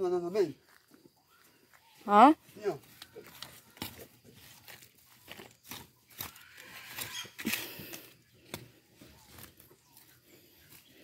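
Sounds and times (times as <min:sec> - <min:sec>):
digging in loose soil: 0:02.5 - 0:11.0.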